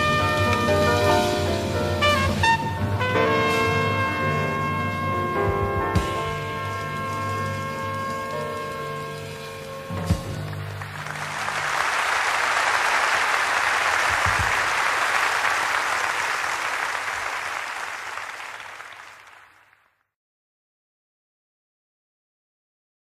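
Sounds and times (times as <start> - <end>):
low jazz notes ringing: 0.0 - 10.9
audience applauding: 6.0 - 20.0.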